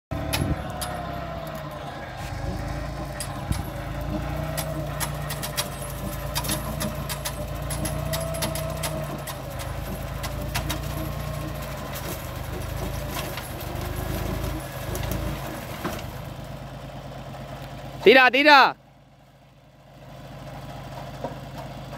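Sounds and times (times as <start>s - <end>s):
tractor engine running: 0.0s - 21.9s
mulcher whine: 0.1s - 16.4s
sharp cracks of shredding brush: 0.2s - 16.2s.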